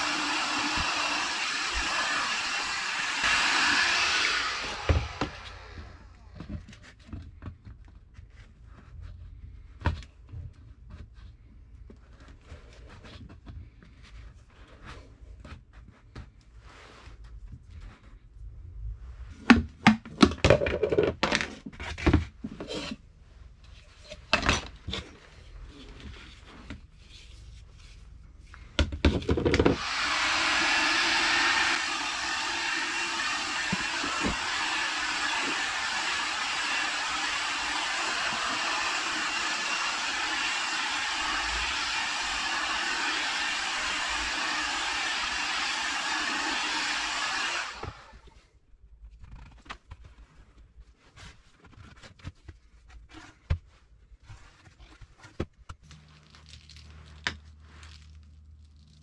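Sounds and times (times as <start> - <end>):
heat gun blowing: 0.0 - 6.4, 29.6 - 48.3.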